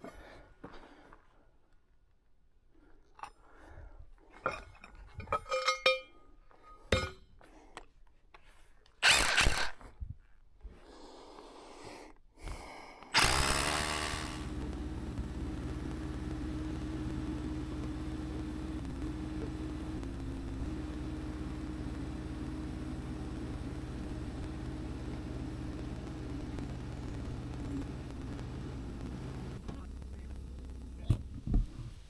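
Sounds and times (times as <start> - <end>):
metallic clinks and knocks: 4.4 - 7.3
loud burst of noise: 9.0 - 9.8, 13.2 - 31.5
engine running: 13.2 - 31.8.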